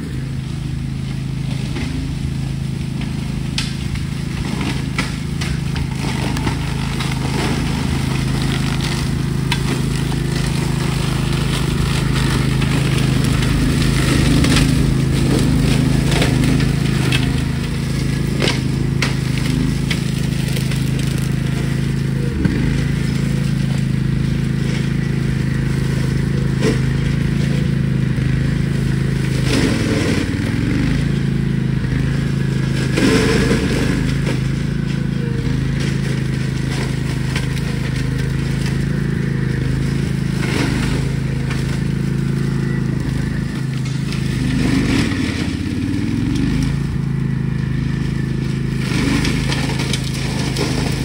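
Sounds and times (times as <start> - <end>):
mower engine running: 0.0 - 51.0
stems and branches snapping: 3.5 - 7.5.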